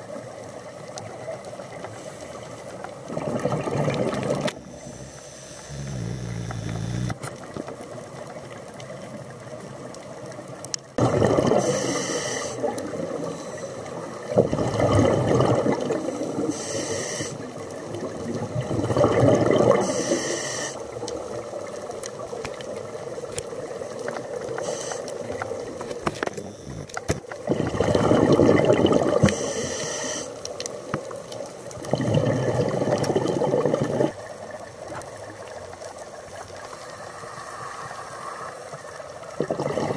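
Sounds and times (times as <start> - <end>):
exhaled bubbles underwater: 2.8 - 7.6, 11.0 - 36.7, 39.0 - 39.9.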